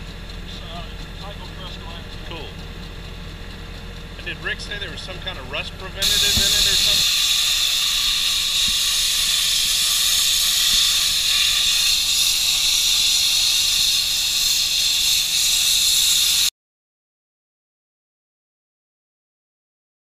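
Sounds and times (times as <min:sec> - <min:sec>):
abrasive blasting hiss: 0:06.0 - 0:15.5.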